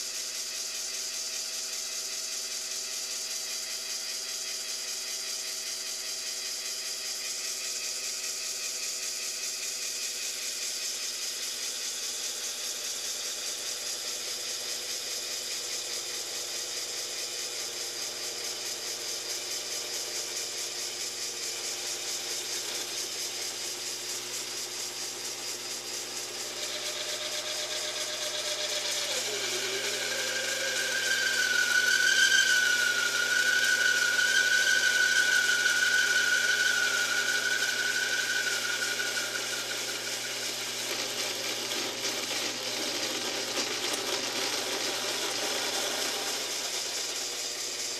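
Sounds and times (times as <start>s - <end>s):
lathe tool rattling chatter: 19.4s - 47.9s.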